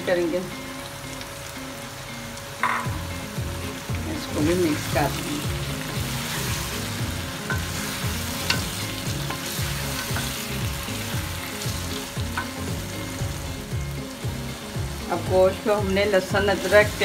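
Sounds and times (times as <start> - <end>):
food sizzling in hot oil: 0.0 - 17.0
spatula tapping against pan: 12.2 - 12.7.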